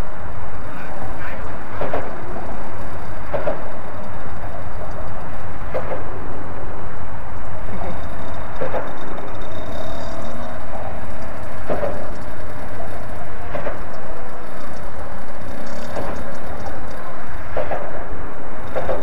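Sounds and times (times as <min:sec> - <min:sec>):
traffic rumble: 0:00.0 - 0:19.0
wind: 0:00.0 - 0:19.0
mini dirt bike engine: 0:07.7 - 0:17.2.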